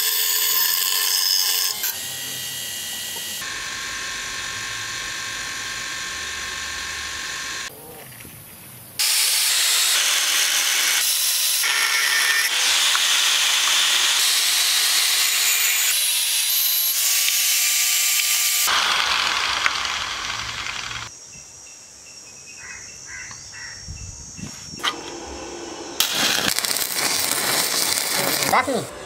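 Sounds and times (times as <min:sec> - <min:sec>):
angle grinder grinding steel: 0:00.0 - 0:07.7, 0:09.0 - 0:21.1, 0:24.8 - 0:29.0
faint motor whine: 0:24.8 - 0:26.1.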